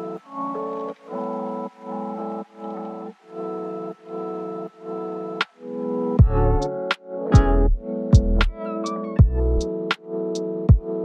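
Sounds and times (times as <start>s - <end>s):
electronic beat music: 3.3s - 11.0s
deep kick drum hits: 6.2s - 6.5s, 7.4s - 8.5s.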